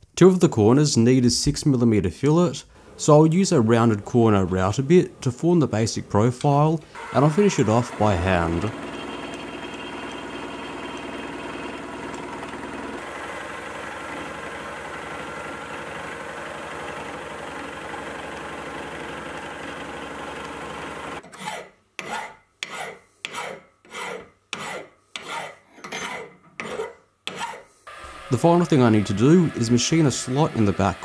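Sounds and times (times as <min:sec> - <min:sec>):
milling machine cutting metal: 0:07.0 - 0:21.2, 0:27.9 - 0:31.0
hand file on metal: 0:21.3 - 0:27.7.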